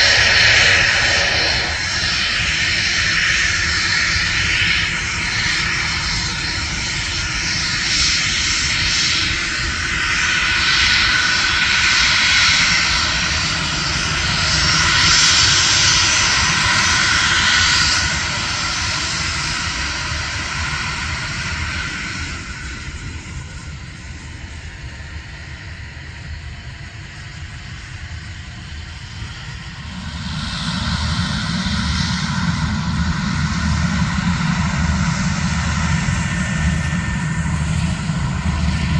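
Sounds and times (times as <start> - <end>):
low rumble: 0.0 - 3.9
jet engines whining: 0.0 - 38.9.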